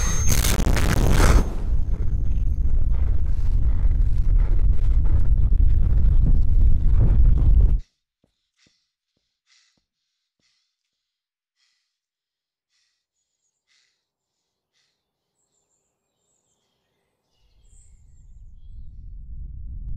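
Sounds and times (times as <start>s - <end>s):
low rumble: 0.0s - 7.8s, 17.8s - 19.9s
man breathing slowly: 8.3s - 14.1s.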